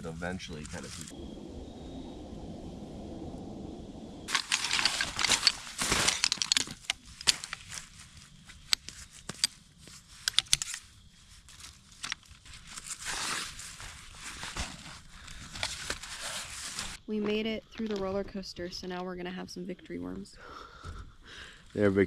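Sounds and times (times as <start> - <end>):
low rushing noise: 0.0 - 4.8
material crinkling and rustling: 4.3 - 17.0.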